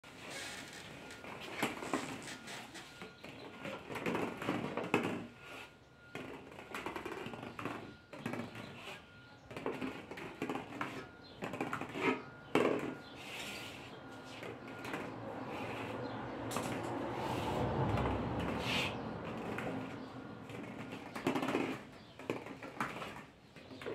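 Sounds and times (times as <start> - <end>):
plastic balls clicking and rolling: 19.2 - 23.9.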